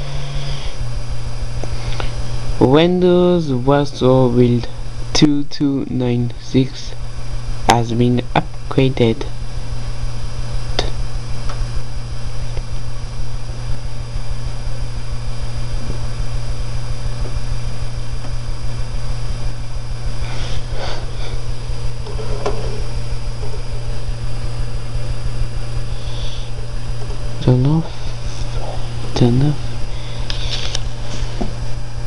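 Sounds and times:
steady low hum: 0.0s - 32.0s
even hiss: 25.9s - 26.7s.

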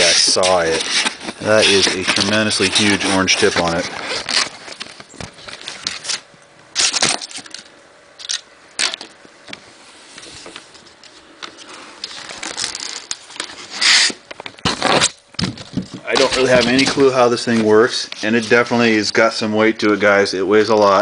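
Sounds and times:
cardboard and foam rustling: 0.0s - 7.4s, 10.0s - 19.0s.

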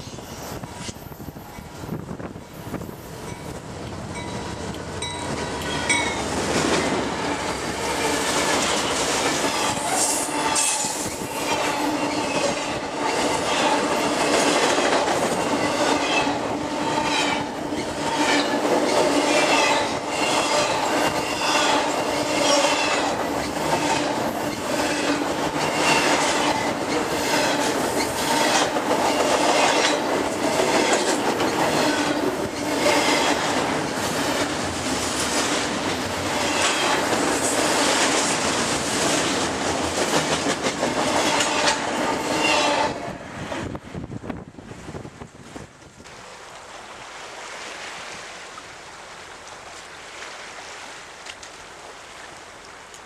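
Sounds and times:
locomotive passing: 0.0s - 44.1s
wheels clacking over rail joints: 3.2s - 43.0s.

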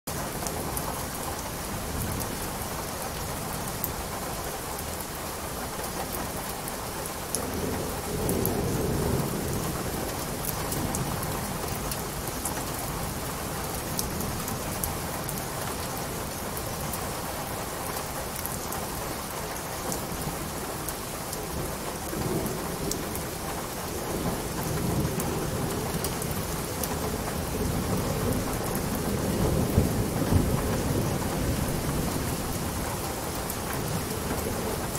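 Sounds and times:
steady rain: 0.1s - 34.9s
thunder rumbling: 20.0s - 34.9s.

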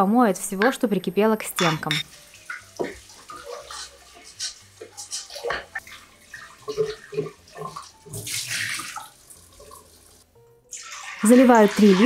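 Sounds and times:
pot being scrubbed: 2.8s - 8.9s.

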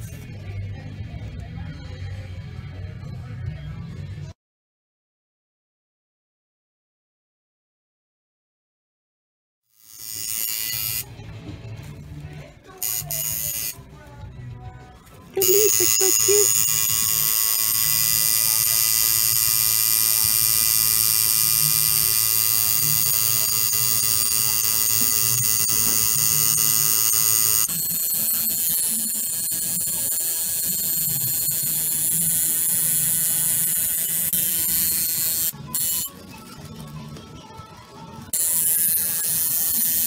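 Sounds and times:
tattoo machine buzzing: 9.7s - 11.1s, 12.8s - 13.8s, 15.4s - 36.2s, 38.3s - 40.0s.

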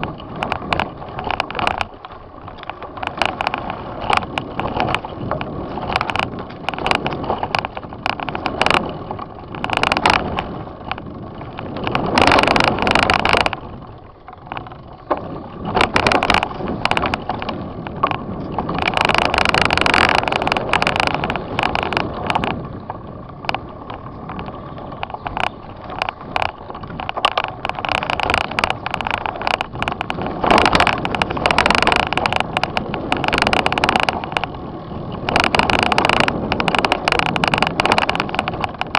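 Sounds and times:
bike knocks and clicks: 0.0s - 38.9s
bike tyres rumbling over dirt: 0.0s - 38.9s
tyres on gravel: 0.0s - 38.9s.

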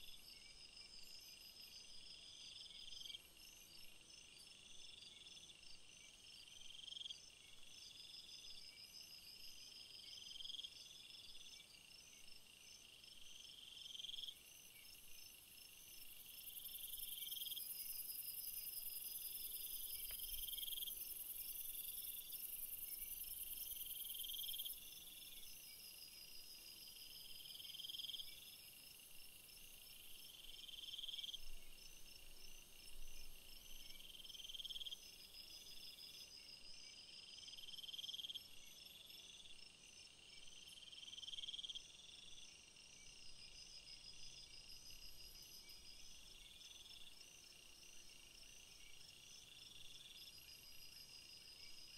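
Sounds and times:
crickets chirping: 0.0s - 51.9s.

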